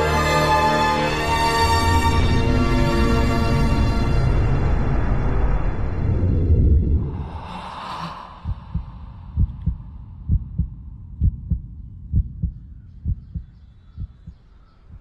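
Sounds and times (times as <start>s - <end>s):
heartbeat thumps: 8.4s - 15.0s.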